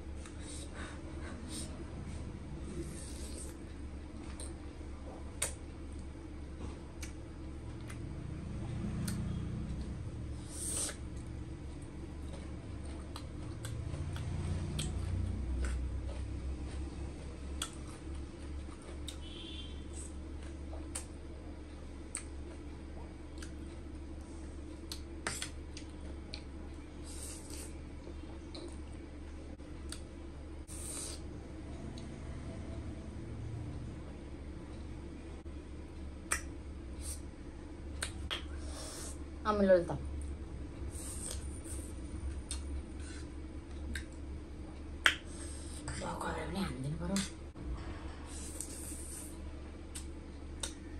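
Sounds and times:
low hum: 0.0s - 50.9s
wet mouth clicks and smacks: 5.4s - 5.6s, 17.6s - 17.8s, 36.2s - 36.6s, 38.0s - 38.6s, 49.9s - 50.8s
person chewing noodles: 9.0s - 24.0s, 24.6s - 27.8s, 40.8s - 44.1s.

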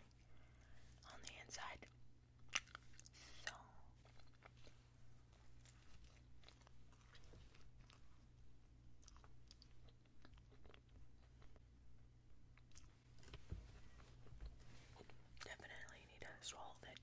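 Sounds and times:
person chewing with crunching: 1.8s - 11.7s, 12.5s - 15.9s.

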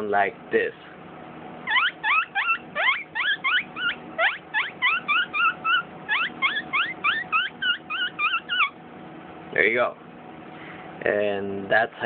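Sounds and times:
man making high squeaks with mouth: 1.7s - 8.8s.

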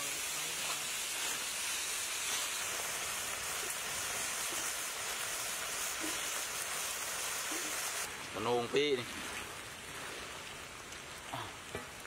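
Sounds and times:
beetles sizzling in a wok: 0.0s - 8.1s.

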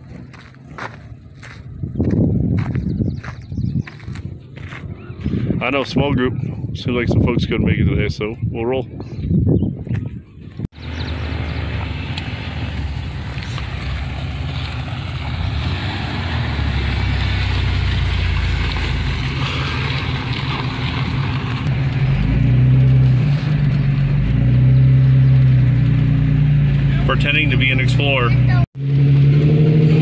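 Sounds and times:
tyres on gravel: 0.0s - 6.0s, 9.9s - 28.6s
engine drone: 10.8s - 30.0s.

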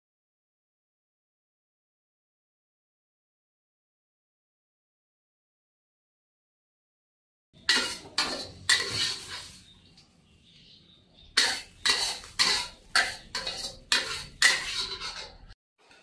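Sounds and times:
metal spatula scraping a wok: 7.6s - 9.9s, 11.4s - 16.0s.

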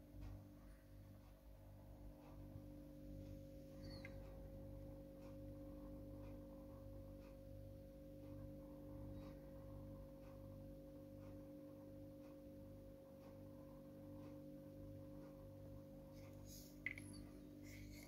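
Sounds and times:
faint electrical hum: 0.0s - 18.0s
faint clicks: 16.2s - 18.0s.

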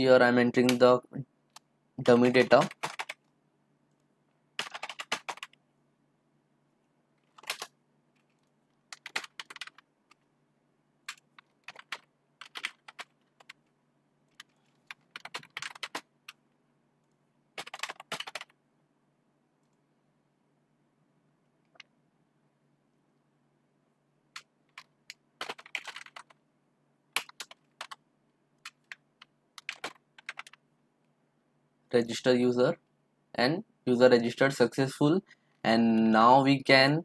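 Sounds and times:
computer keyboard typing: 1.5s - 3.3s, 4.6s - 5.6s, 7.2s - 10.3s, 11.0s - 13.7s, 14.3s - 16.4s, 17.6s - 18.6s, 24.3s - 26.4s, 27.1s - 28.0s, 28.6s - 30.6s.

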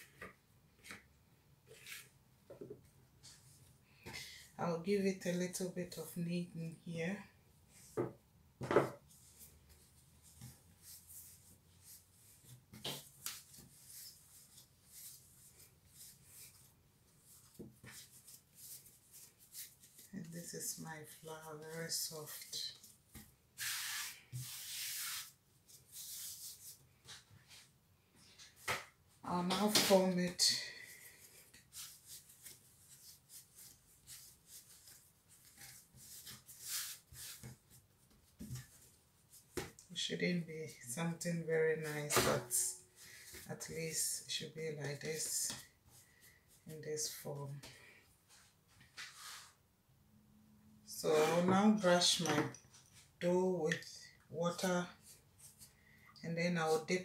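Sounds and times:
hands rubbing bread dough: 9.1s - 27.7s, 29.8s - 39.8s
hands kneading dough: 31.0s - 40.0s.

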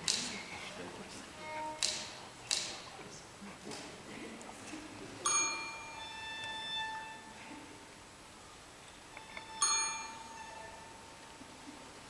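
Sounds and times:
soft orchestral strings: 0.0s - 12.0s
typewriter carriage bell ringing: 9.6s - 10.6s.

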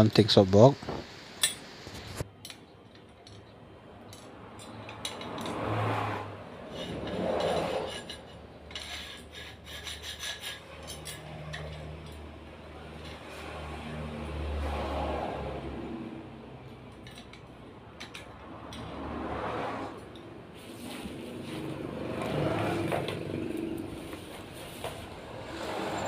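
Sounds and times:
rubbing and scraping handling noise: 6.6s - 11.2s, 20.5s - 26.0s.

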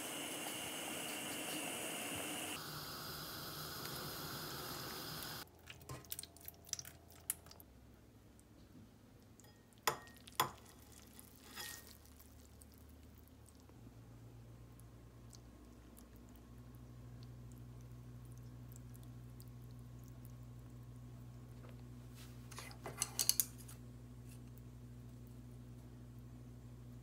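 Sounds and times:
water boiling and bubbling: 0.0s - 6.9s.

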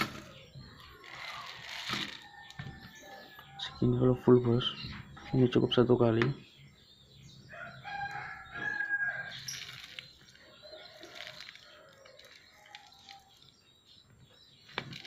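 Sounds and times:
rooster crowing: 7.5s - 9.5s.

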